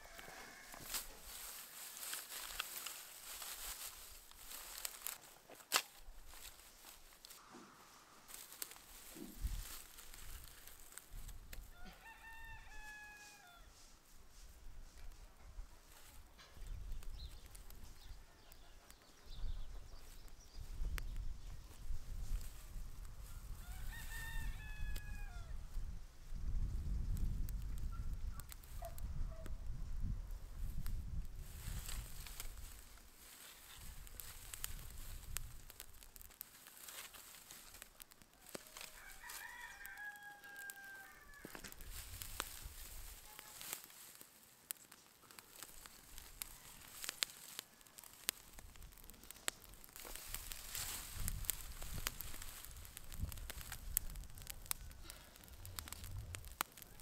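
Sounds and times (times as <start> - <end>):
rooster crowing: 0.0 - 1.2, 11.7 - 13.8, 23.4 - 25.6, 38.4 - 41.7.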